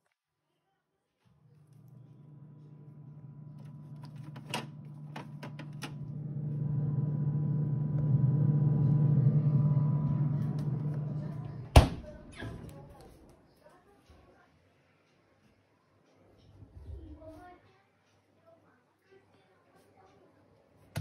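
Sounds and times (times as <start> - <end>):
refrigerator humming: 1.3 - 12.9
freezer door shutting: 2.6 - 12.6.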